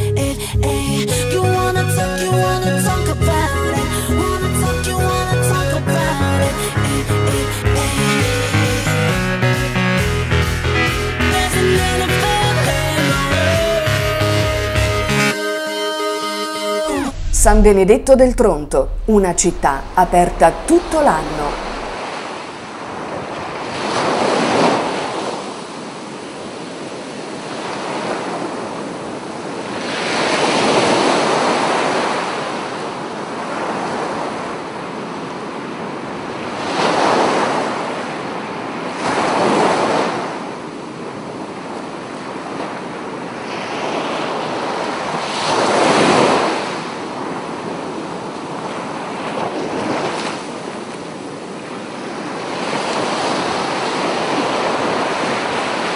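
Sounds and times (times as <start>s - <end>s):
waves breaking on a beach: 21.0s - 55.9s.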